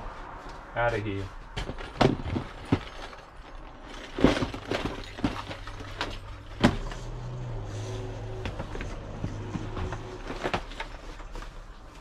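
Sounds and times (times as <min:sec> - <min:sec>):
plastic boxes knocking and clattering: 0:01.5 - 0:07.2, 0:08.4 - 0:11.6.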